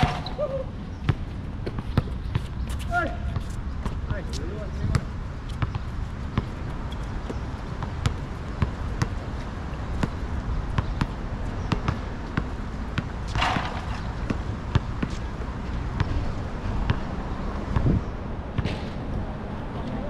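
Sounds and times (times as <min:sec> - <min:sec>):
basketball bouncing on hard court: 0:10.8 - 0:15.2.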